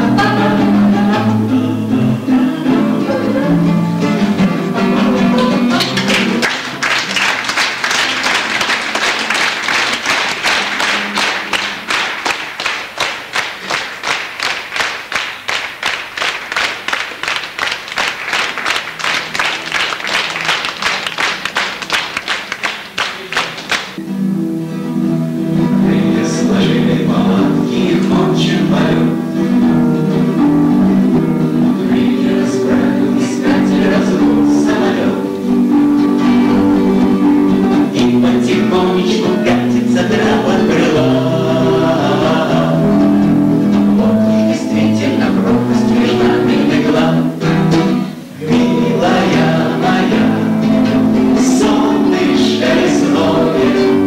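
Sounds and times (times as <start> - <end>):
vocal group singing: 0.0 - 6.4, 25.6 - 54.0
acoustic guitar: 0.0 - 54.0
audience applauding: 5.6 - 24.0.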